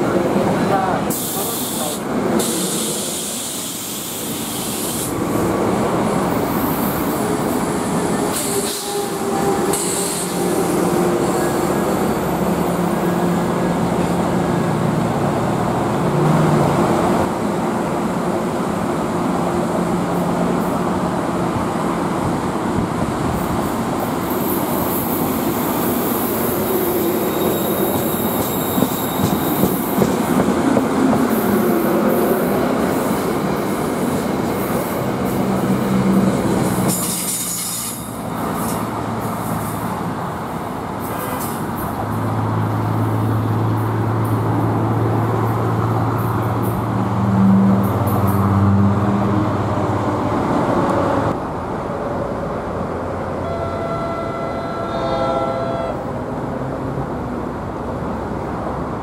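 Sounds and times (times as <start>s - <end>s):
train wheels rumbling on rails: 0.0s - 53.4s
high wheel squeal: 25.9s - 29.8s.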